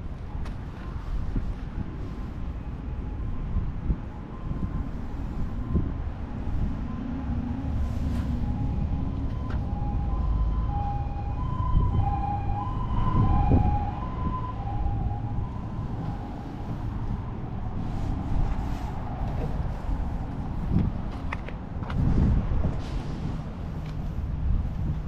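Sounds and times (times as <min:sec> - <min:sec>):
steady low rumble: 0:00.0 - 0:25.0
two-tone ambulance siren: 0:02.5 - 0:20.7.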